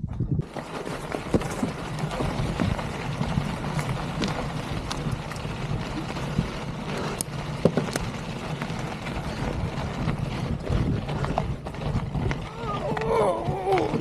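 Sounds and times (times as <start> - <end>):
bike tyres crunching on stony dirt: 0.0 - 14.0
stones and bike clicking: 0.0 - 14.0
wind buffeting microphone: 0.0 - 14.0.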